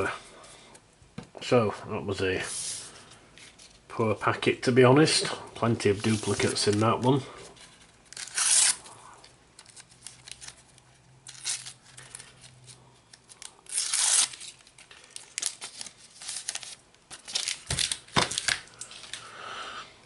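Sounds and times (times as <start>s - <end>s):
stickers being handled: 5.1s - 8.6s
foil crinkling: 5.8s - 7.2s, 9.6s - 19.3s
foil packet tearing: 8.1s - 8.9s, 11.2s - 19.2s.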